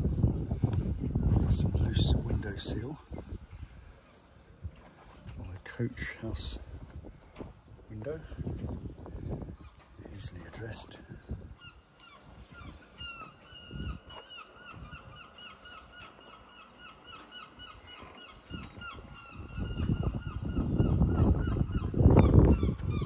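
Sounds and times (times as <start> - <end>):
bird calling in hooked notes: 11.6 - 23.0.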